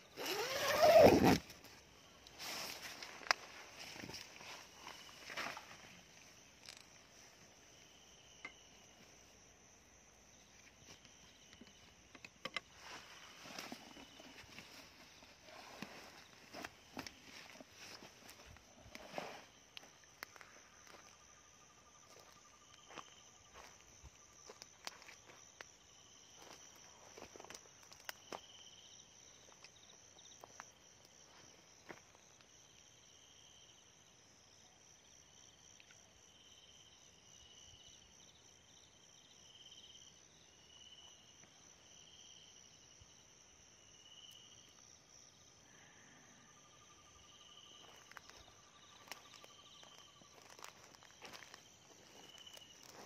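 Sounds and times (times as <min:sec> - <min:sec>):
insect short chirps: 0:00.0 - 0:09.4, 0:45.6 - 0:53.0
cricket trill: 0:00.0 - 0:53.0.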